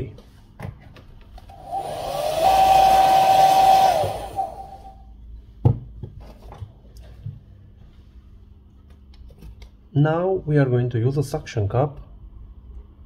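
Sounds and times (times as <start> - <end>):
hairdryer blowing: 1.5 - 5.0.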